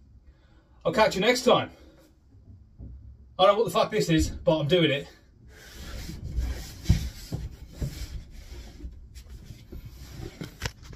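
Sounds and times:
scuffing on plywood: 0:05.7 - 0:10.4.

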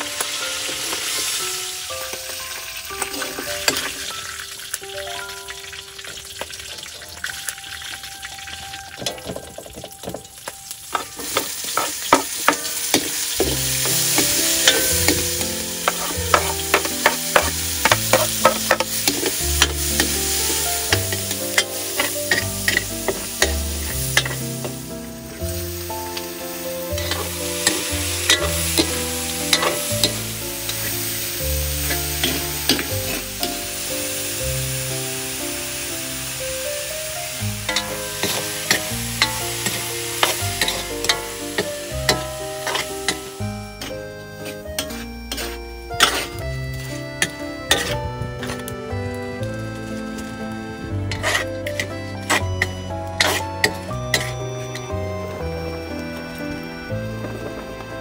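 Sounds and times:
oil sizzling in a wok: 0:00.0 - 0:58.0
soft background music: 0:00.0 - 0:58.0
metal ladle scraping and clanking: 0:10.9 - 0:24.8, 0:26.9 - 0:31.2, 0:31.8 - 0:33.6, 0:37.7 - 0:46.4, 0:47.2 - 0:48.8, 0:51.1 - 0:54.9.

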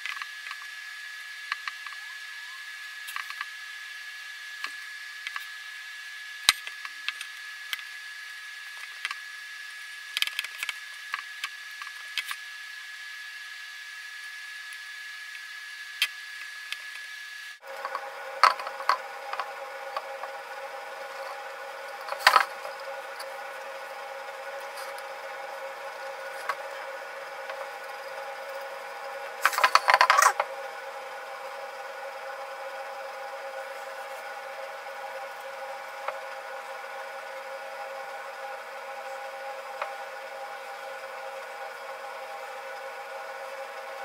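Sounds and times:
steady hum: 0:13.7 - 0:44.0.

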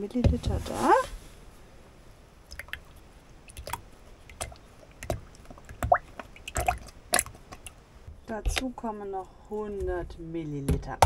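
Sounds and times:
carton glugging: 0:02.5 - 0:08.8.

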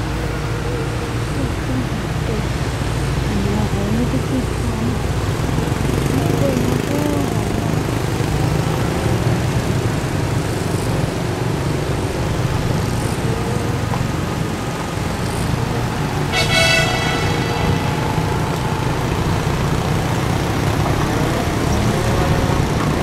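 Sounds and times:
car engine and road noise: 0:00.0 - 0:23.0
car horn toot: 0:16.2 - 0:20.4.

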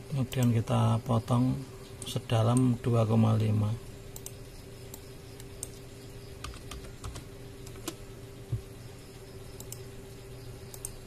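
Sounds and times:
steady low hum: 0:00.0 - 0:11.0
keyboard and mouse clicks: 0:06.4 - 0:08.6, 0:10.7 - 0:11.0.

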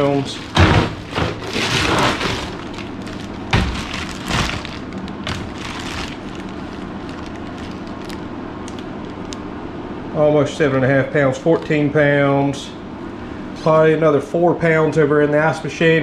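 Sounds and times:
ice cubes shifting: 0:00.0 - 0:08.2
plastic bags crinkling: 0:00.0 - 0:09.4
steady background hum: 0:00.0 - 0:16.0.

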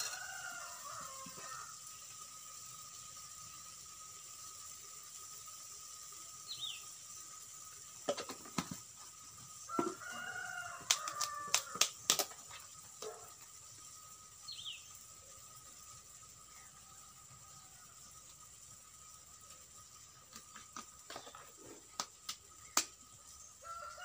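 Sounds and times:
rooster crowing: 0:00.0 - 0:01.8, 0:09.7 - 0:11.9, 0:23.6 - 0:24.0
small bird chirping: 0:06.4 - 0:07.2, 0:14.4 - 0:15.6.

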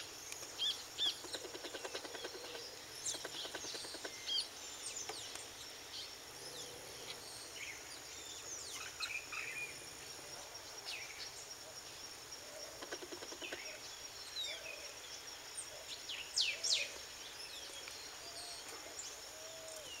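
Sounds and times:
insect drone: 0:00.0 - 0:20.0.

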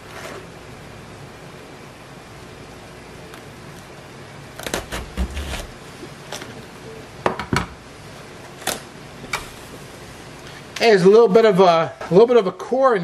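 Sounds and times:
knife crunching through cabbage: 0:04.5 - 0:05.8.

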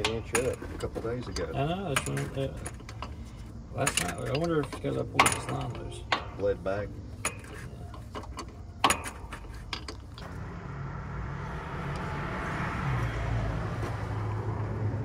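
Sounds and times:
low engine hum: 0:10.1 - 0:15.0.

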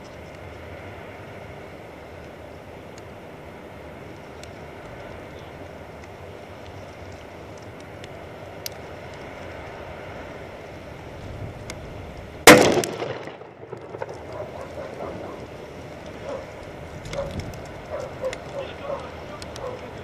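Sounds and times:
steady background hiss: 0:00.0 - 0:20.0
plastic bottle bursting bang: 0:12.5 - 0:14.0.

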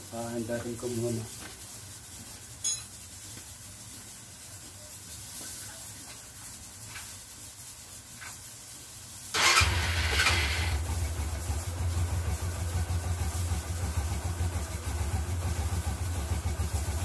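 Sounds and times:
motorcycle engine starting: 0:09.3 - 0:17.0
motorcycle engine idling: 0:09.4 - 0:17.0.

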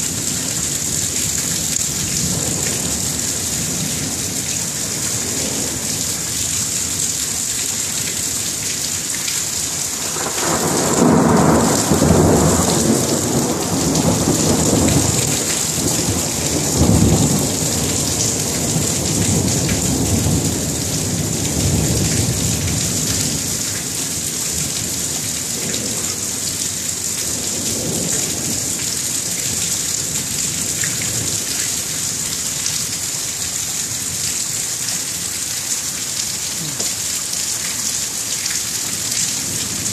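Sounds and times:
steady rain: 0:00.0 - 0:39.9
thunder rumbling: 0:10.0 - 0:23.5.

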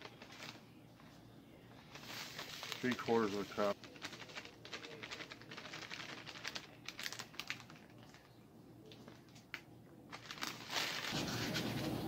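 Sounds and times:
granules pouring into plastic scoop: 0:02.0 - 0:08.2, 0:10.2 - 0:11.6.

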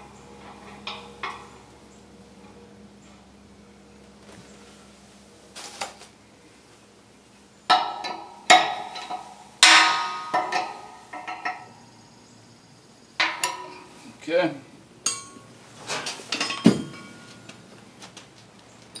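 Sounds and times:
metal wrench clanking: 0:07.7 - 0:11.7, 0:15.0 - 0:15.5.

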